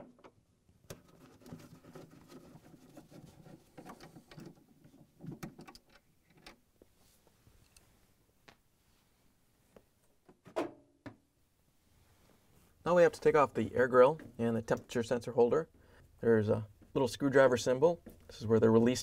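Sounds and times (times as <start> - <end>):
gloved hands moving plastic: 0.9 - 6.6.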